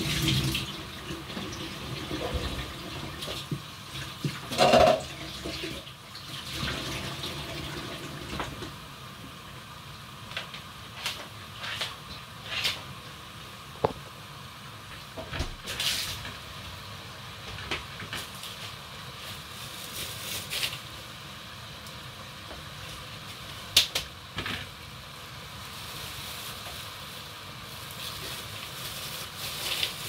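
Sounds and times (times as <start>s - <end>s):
plantain frying in hot oil: 0.0s - 30.0s
utensils and dishes clattering: 4.4s - 5.2s.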